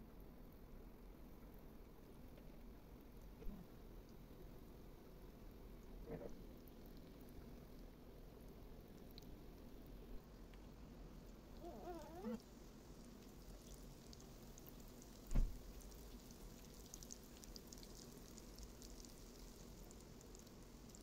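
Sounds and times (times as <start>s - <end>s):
oil sizzling and crackling: 8.4s - 21.0s
short wavering cry: 11.6s - 12.4s
dull thump: 15.3s - 15.6s.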